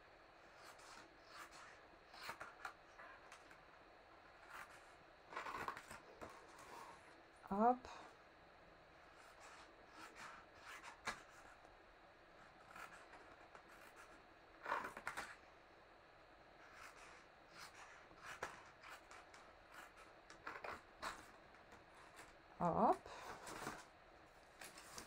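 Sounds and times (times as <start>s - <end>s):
paper rustling: 24.5s - 25.0s.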